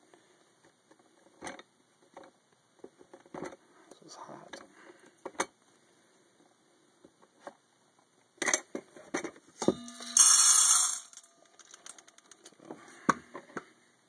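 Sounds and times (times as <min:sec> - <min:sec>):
scattered clicks and knocks: 0:08.4 - 0:13.7
bowl ringing: 0:09.6 - 0:11.6
coffee beans rattling in steel bowl: 0:09.6 - 0:12.5.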